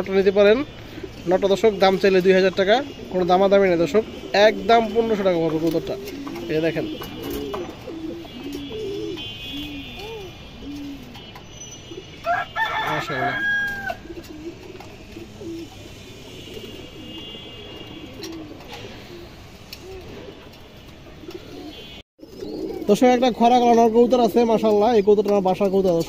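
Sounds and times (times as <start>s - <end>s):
pigeons cooing: 0.7s - 26.0s
rooster crowing: 12.2s - 14.1s.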